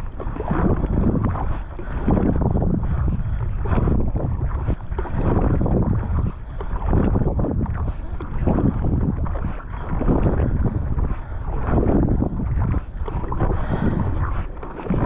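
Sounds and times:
kayak paddle splashing: 0.0s - 15.0s
wind noise on microphone: 0.0s - 15.0s.

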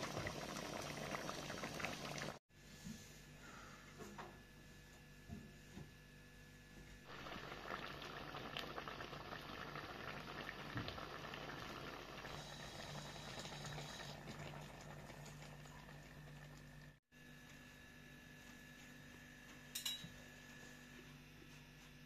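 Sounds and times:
sauce bubbling in a pot: 0.0s - 2.4s, 7.1s - 17.1s.

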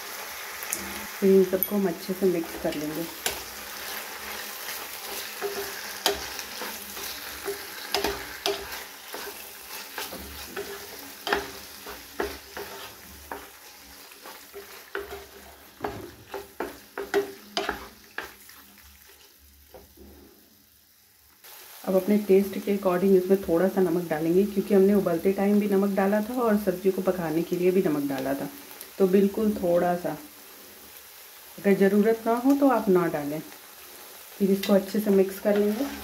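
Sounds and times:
light sizzle: 0.0s - 36.0s
spatula scraping a pan: 2.4s - 20.2s, 35.2s - 36.0s.

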